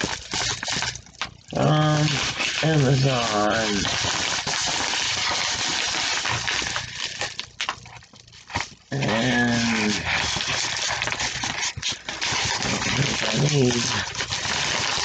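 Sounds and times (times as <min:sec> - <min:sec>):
paper envelope crumpling: 0:00.0 - 0:15.0
pitched voice-like sound: 0:08.9 - 0:10.0.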